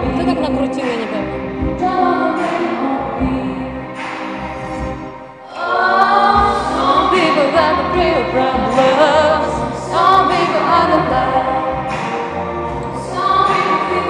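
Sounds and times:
girl singing into microphone: 0.0 - 3.8
music with low bass: 0.0 - 5.3, 6.0 - 14.0.

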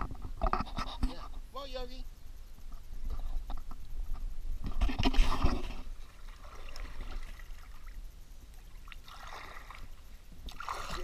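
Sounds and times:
water lapping around a kayak: 4.9 - 11.0.

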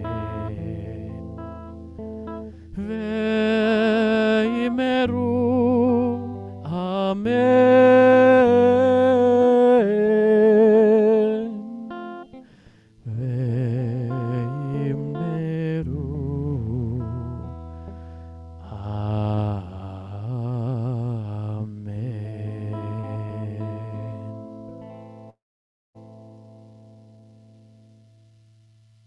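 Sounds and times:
man singing with vibrato: 0.0 - 1.8, 2.5 - 12.4, 13.0 - 17.7, 18.6 - 24.4
guitar: 0.0 - 25.4, 26.0 - 29.0.

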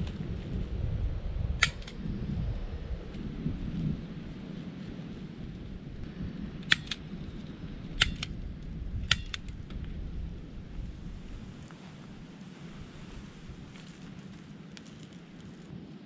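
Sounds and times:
steady low rumble: 0.0 - 16.0
sharp double clicks: 1.6 - 2.0, 6.6 - 7.1, 8.0 - 8.4, 9.0 - 9.6.

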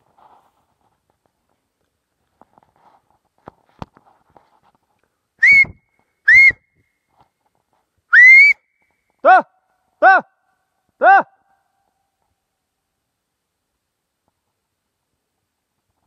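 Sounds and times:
person whistling: 5.4 - 6.6, 8.1 - 8.6.

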